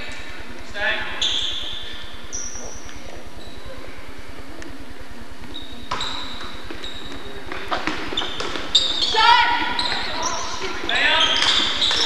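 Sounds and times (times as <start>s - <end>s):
low hum of gymnasium: 0.0s - 12.0s
sneaker squeaks on court: 1.2s - 3.7s, 5.5s - 12.0s.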